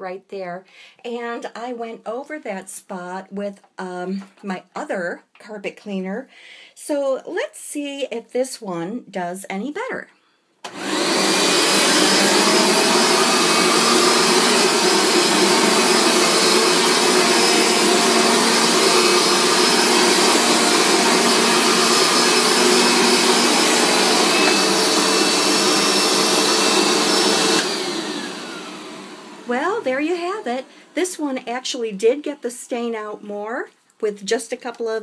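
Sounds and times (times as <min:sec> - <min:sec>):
carpet cleaner motor whining: 0:10.7 - 0:31.0.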